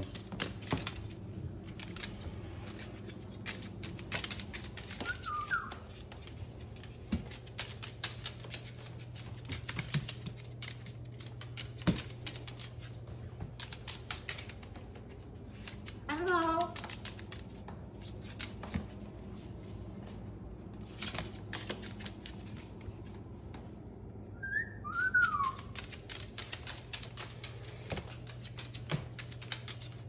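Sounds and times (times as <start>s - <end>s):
bird claws clicking on wooden floor: 0.0s - 13.0s, 13.6s - 19.0s, 25.2s - 30.0s.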